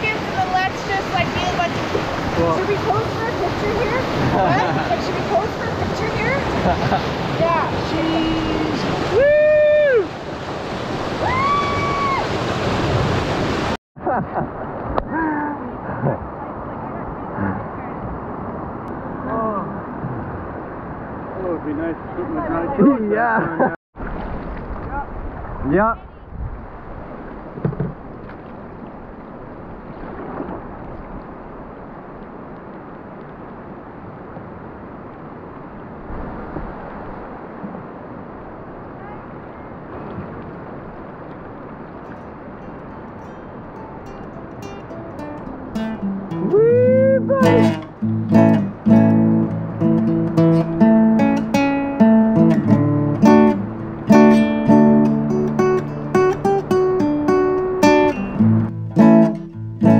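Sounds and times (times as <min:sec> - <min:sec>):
river water rushing: 0:00.0 - 0:13.8, 0:14.6 - 0:23.2, 0:26.7 - 0:59.9
wind on microphone: 0:14.8 - 0:21.2, 0:24.0 - 0:43.8
knock: 0:27.6 - 0:28.0
acoustic guitar music: 0:42.0 - 0:59.9.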